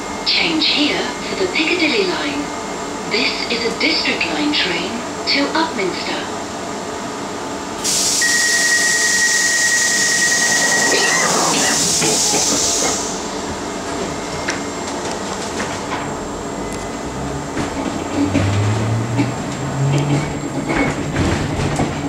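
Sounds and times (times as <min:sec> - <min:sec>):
train carriage background noise: 0:00.0 - 0:22.0
compressed air hiss: 0:07.8 - 0:08.5, 0:09.3 - 0:13.3
steady high-pitched tone: 0:08.2 - 0:13.4.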